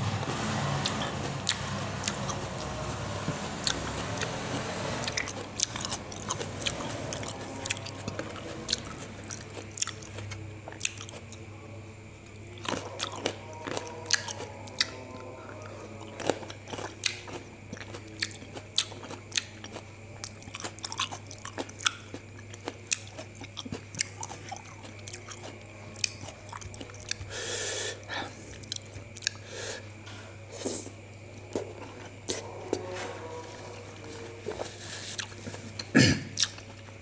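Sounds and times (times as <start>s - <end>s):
chewing and crunching grapes: 0.0s - 37.0s
breathy noise: 27.3s - 28.6s.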